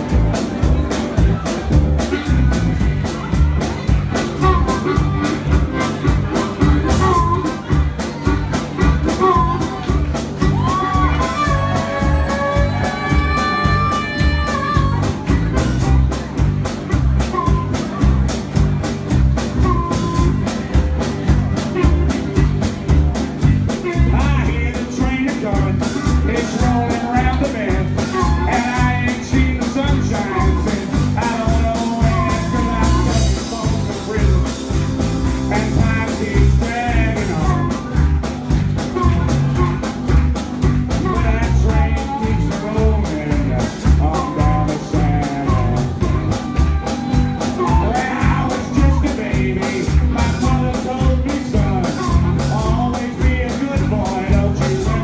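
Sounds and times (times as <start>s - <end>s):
harmonica: 0.0s - 3.2s, 4.1s - 18.2s, 19.4s - 42.8s
drum kit beat: 0.0s - 55.0s
electric bass: 0.0s - 55.0s
man singing: 8.5s - 15.6s, 23.4s - 38.0s, 40.9s - 55.0s.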